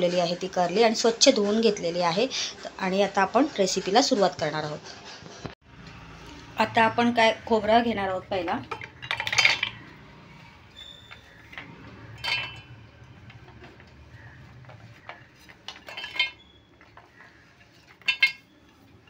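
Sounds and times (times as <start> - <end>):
metal dish clinking on jar: 8.5 - 10.0, 11.6 - 14.0, 15.0 - 17.0, 17.9 - 18.5
coconut pieces landing in metal jar: 8.7 - 9.8.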